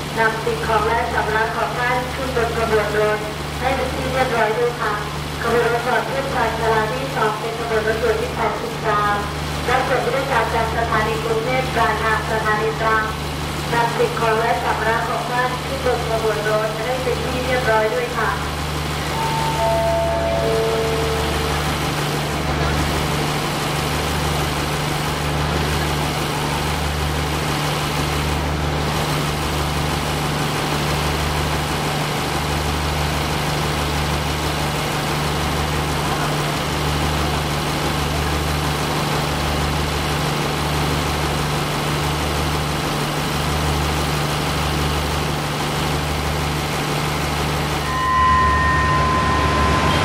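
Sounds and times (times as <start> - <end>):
high whistle-like tone: 19.1 - 21.3, 47.9 - 50.0.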